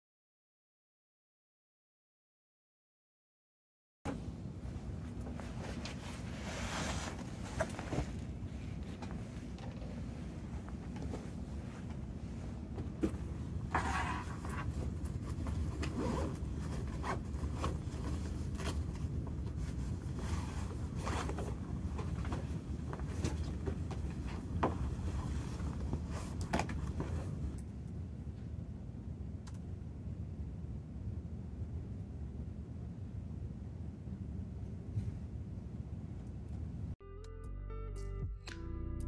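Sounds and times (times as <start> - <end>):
steady low hum: 4.1 - 37.1
zipper pulled: 13.7 - 18.9.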